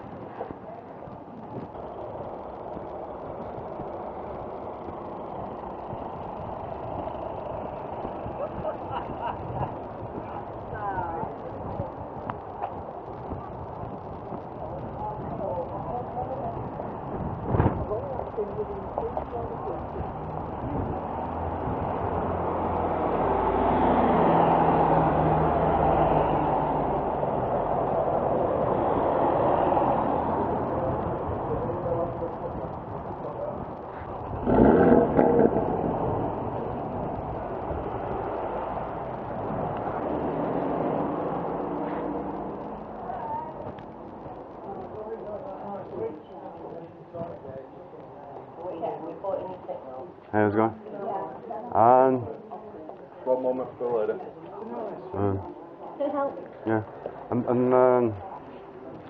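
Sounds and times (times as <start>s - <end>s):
road noise rushing: 0.0s - 59.0s
street traffic rumble: 0.0s - 59.0s
motor vehicle passing: 19.1s - 45.6s.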